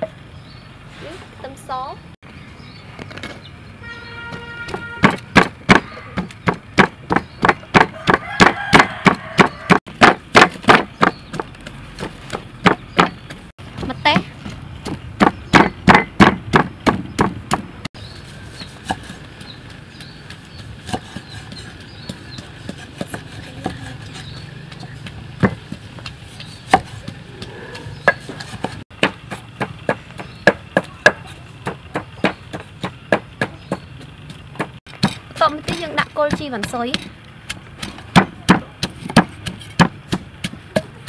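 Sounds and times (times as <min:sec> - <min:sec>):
wooden pestle pounding in mortar: 0:04.3 - 0:17.7, 0:18.5 - 0:41.0
knife cutting on wooden board: 0:20.8 - 0:24.4.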